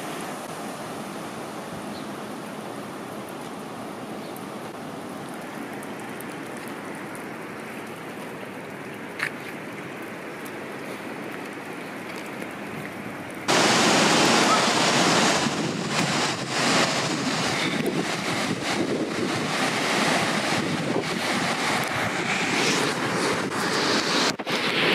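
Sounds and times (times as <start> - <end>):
floodwater rushing: 0.0 - 24.9
wind buffeting microphone: 12.7 - 24.9.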